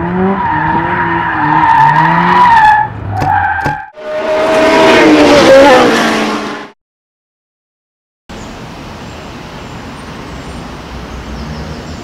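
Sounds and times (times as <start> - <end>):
car tyres squealing: 0.1 - 6.0.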